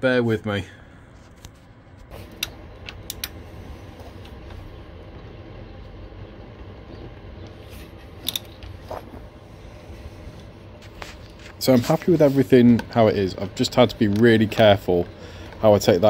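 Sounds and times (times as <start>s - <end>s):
steady low hum: 0.0s - 16.0s
metallic tool clicks: 8.2s - 8.6s.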